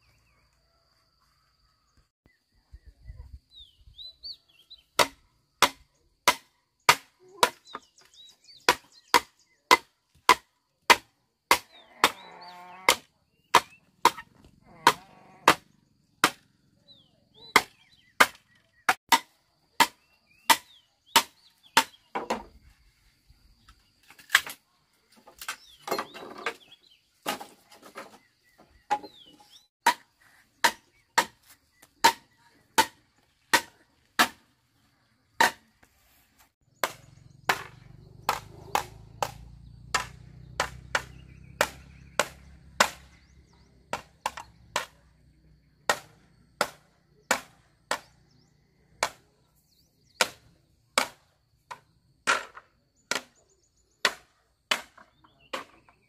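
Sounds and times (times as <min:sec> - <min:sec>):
birds chirping: 0:01.8 - 0:09.9, 0:11.7 - 0:19.0, 0:24.8 - 0:33.6, 0:34.7 - 0:50.8
blade chopping bamboo: 0:05.0 - 0:07.8, 0:08.7 - 0:12.2, 0:12.9 - 0:14.2, 0:16.2 - 0:16.4, 0:17.6 - 0:22.4, 0:29.8 - 0:34.4, 0:35.4 - 0:35.7, 0:36.7 - 0:43.3, 0:45.9 - 0:48.1, 0:50.2 - 0:53.3, 0:54.0 - 0:55.8.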